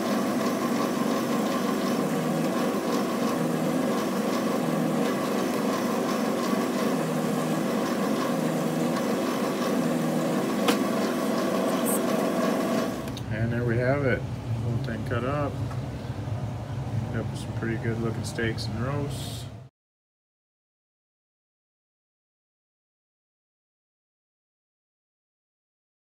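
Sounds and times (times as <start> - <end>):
meat cuber motor hum: 0.0 - 19.6.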